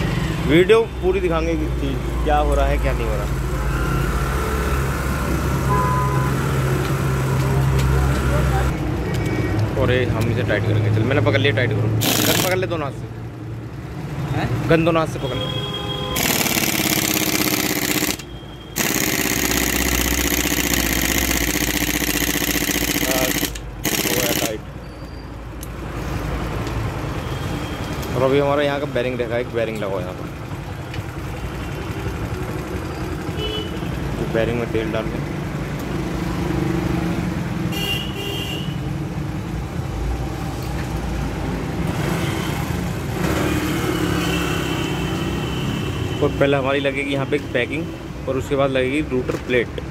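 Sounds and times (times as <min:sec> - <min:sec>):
road traffic noise: 0:00.0 - 0:49.9
impact wrench hammering: 0:12.0 - 0:12.6, 0:16.2 - 0:24.6
vehicle horn toot: 0:15.2 - 0:16.2, 0:33.3 - 0:33.8, 0:37.7 - 0:38.8.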